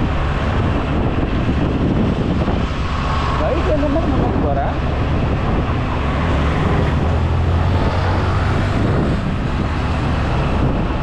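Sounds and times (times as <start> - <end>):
motorcycle engine hum: 0.0 - 11.0
road and wind noise: 0.0 - 11.0.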